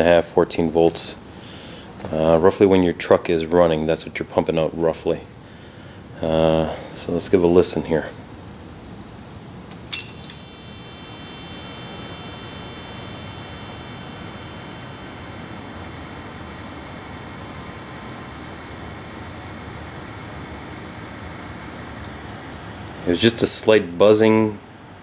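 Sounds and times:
high-pitched buzzing hiss with whine: 9.8s - 23.7s.

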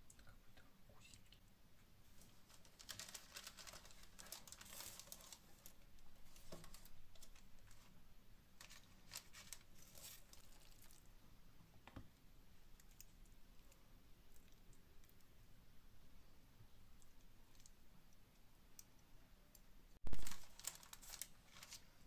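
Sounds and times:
parchment paper crinkling: 2.1s - 8.0s, 8.6s - 11.1s, 20.1s - 22.0s.

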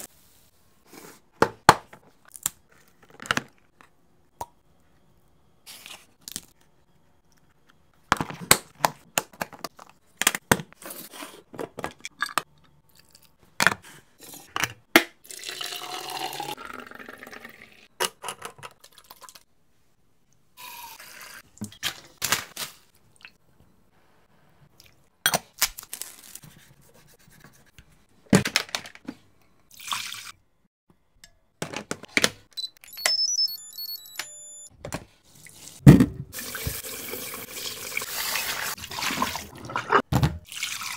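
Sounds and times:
liquid pouring into container: 15.3s - 17.8s, 36.4s - 40.9s.

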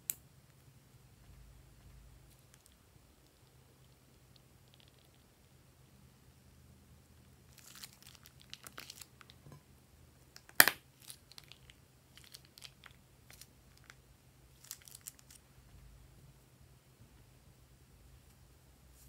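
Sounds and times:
plastic piping bag crinkling: 7.5s - 9.4s, 10.7s - 15.4s.

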